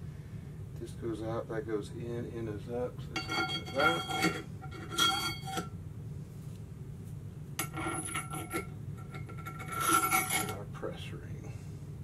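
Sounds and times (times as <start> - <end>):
metal ring scraping on steel shaft: 3.2 - 5.8, 7.6 - 10.6.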